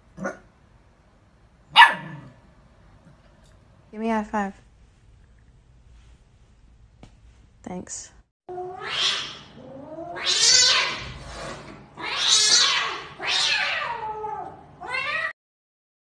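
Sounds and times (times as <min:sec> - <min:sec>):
cat yowling and screeching: 0:08.5 - 0:11.2, 0:12.0 - 0:15.4.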